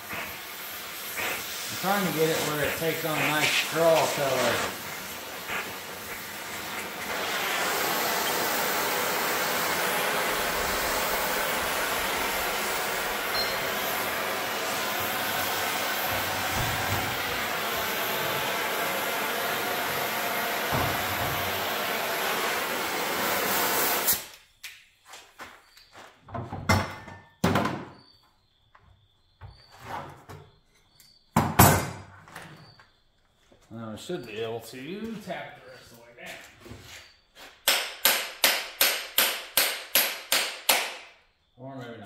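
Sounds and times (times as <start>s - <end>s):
gas torch flame hissing: 0.0s - 24.4s
sharp metal knocks: 37.6s - 41.0s.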